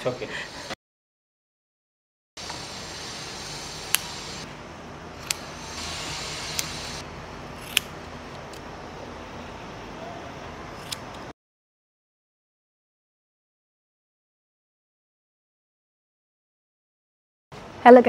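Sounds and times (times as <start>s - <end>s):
steady hiss: 2.4s - 4.5s, 5.2s - 7.0s
scissors snipping hair: 7.6s - 7.9s.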